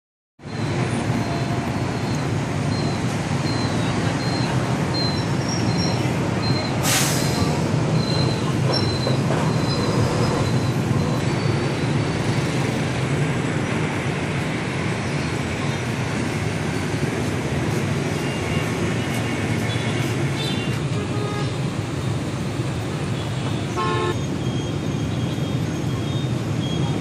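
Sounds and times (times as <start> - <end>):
low traffic hum: 0.4 - 27.0
brief hiss: 6.8 - 7.4.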